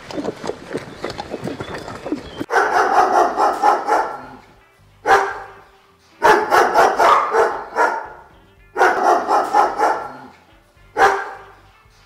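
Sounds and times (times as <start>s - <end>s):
dog barking: 2.5s - 4.4s, 5.0s - 5.6s, 6.2s - 10.4s, 11.0s - 11.6s.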